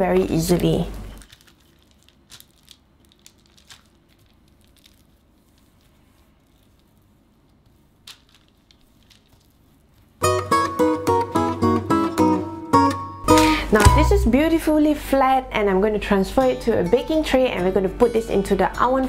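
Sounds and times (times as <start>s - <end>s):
low room noise: 0.0s - 19.0s
plastic wrap crinkling: 0.2s - 10.2s.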